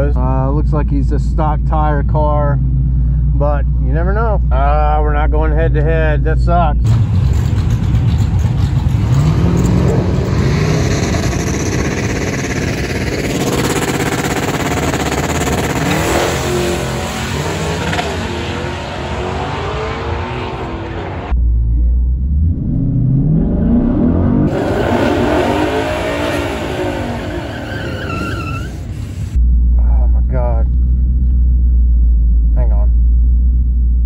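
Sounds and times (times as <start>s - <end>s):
drag car accelerating: 6.8s - 21.4s, 22.1s - 29.4s
engine revving: 6.8s - 28.9s
engine rumble inside car: 29.0s - 34.0s.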